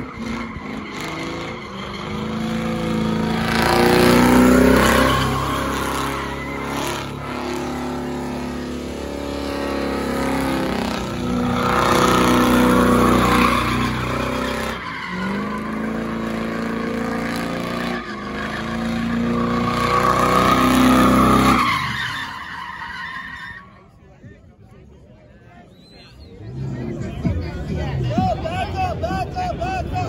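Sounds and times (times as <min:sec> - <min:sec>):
car engine at high revs: 0:00.0 - 0:21.9
tyres squealing: 0:00.0 - 0:23.7.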